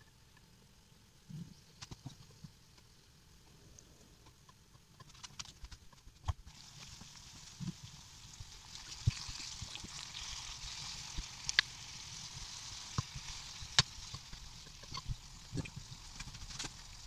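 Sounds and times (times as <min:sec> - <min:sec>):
peel sizzling in a frying pan: 0:05.0 - 0:17.0.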